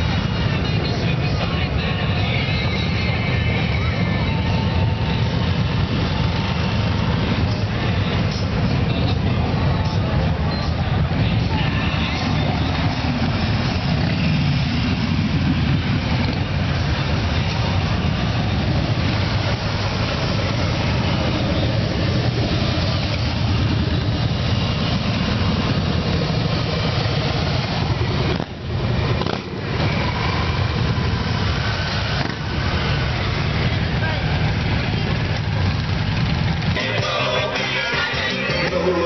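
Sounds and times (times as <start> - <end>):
motorcycles rolling past: 0.0 - 39.0.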